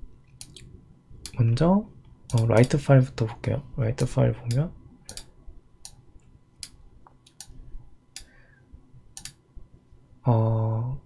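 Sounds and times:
computer mouse clicks: 0.3 - 1.4, 2.3 - 2.8, 4.5 - 6.0, 6.6 - 8.3, 9.1 - 9.4.

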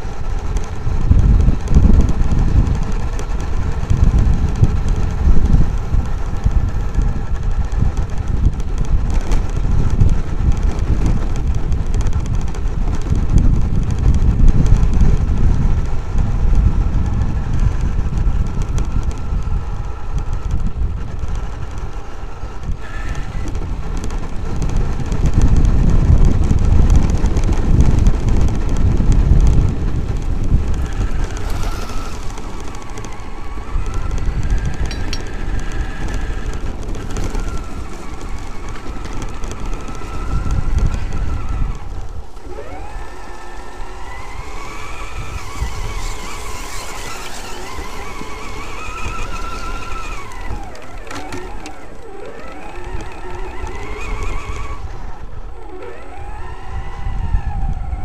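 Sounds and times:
electric motor whine: 0.0 - 58.0
tyres and chassis rumbling: 0.0 - 58.0.

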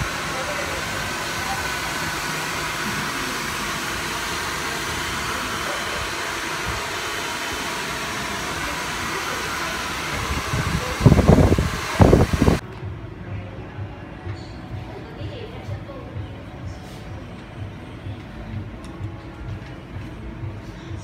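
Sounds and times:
hair dryer blowing: 0.0 - 12.6.

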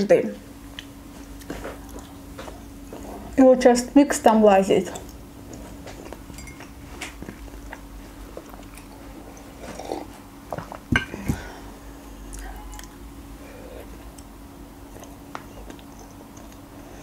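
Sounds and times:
steady low hum: 0.0 - 17.0
marshmallow bitten and chewed: 5.0 - 10.2, 13.8 - 16.8.

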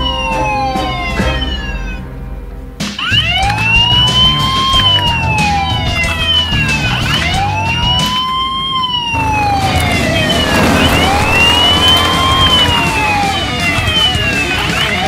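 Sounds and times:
police siren wailing: 0.0 - 2.0, 3.0 - 15.0
second siren tone falling: 7.4 - 15.0.

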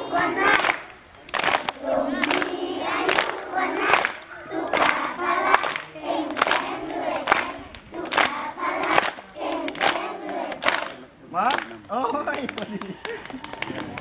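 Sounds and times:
children singing in unison: 0.0 - 10.7
hands clapping: 0.5 - 14.0.

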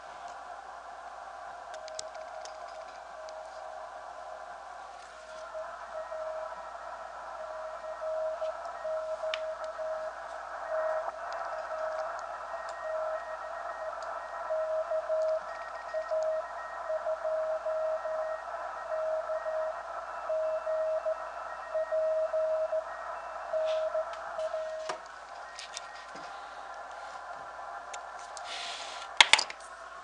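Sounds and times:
radio band noise hiss: 0.0 - 30.0
morse code tone: 5.5 - 6.7, 7.3 - 26.4.

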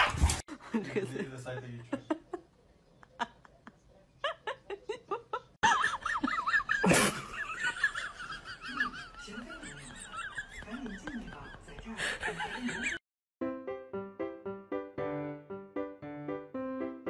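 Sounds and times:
person laughing: 4.4 - 9.1.

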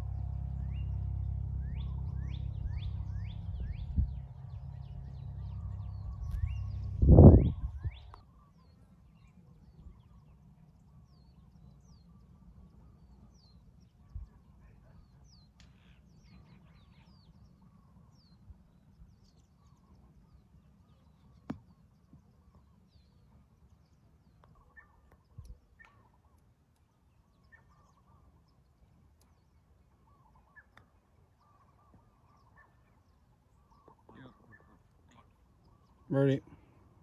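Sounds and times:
low steady rumble: 0.0 - 8.4
faint bird chirps: 0.1 - 37.0.

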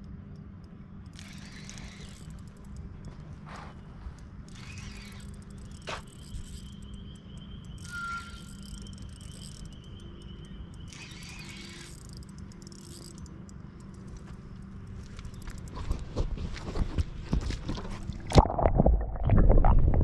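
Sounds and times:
constant low rumble: 0.0 - 20.0
insects trilling: 1.1 - 15.7
insect buzzing: 4.5 - 13.3
whistled note: 7.7 - 10.0.

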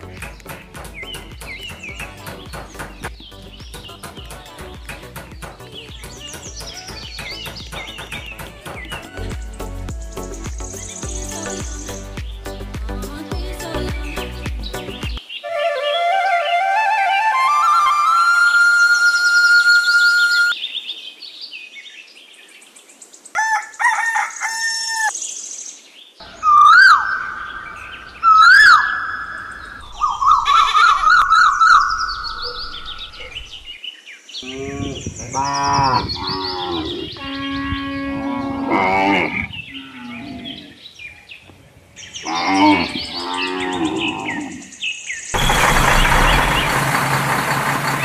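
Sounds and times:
birds chirping: 0.0 - 17.0, 19.8 - 48.0
sharp whistled calls: 26.2 - 33.7.

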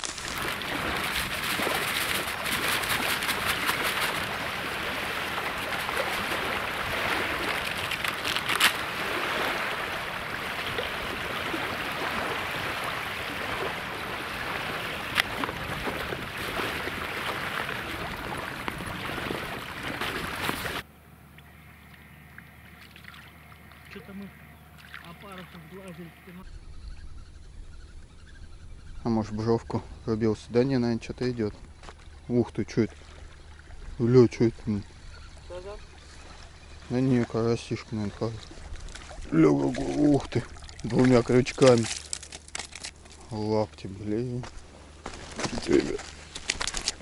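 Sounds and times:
groundbait mixed by hand in bucket: 0.0 - 20.8, 38.3 - 43.4.

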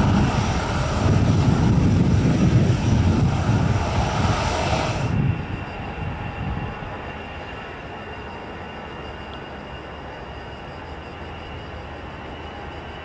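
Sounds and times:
distant jet hum: 0.0 - 9.7
jet engines taxiing: 0.0 - 13.0.

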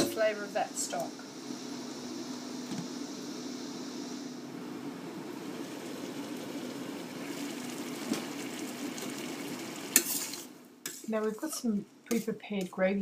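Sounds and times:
food bubbling in a wok: 1.2 - 11.0.

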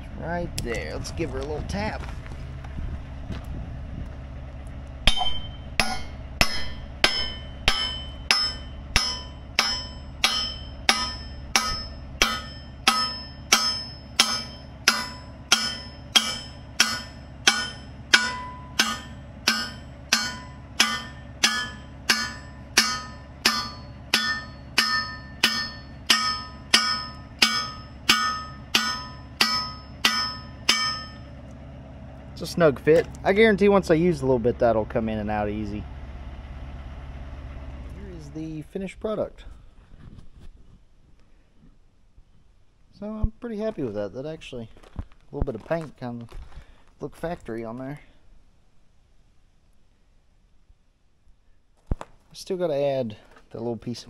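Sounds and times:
steady low hum: 0.0 - 54.0
hammer striking steel: 5.0 - 31.4.

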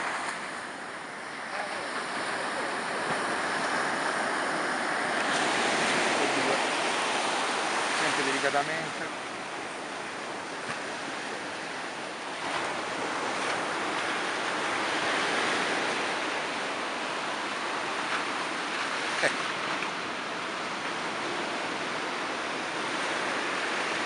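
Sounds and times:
surf washing on beach: 0.0 - 24.0.

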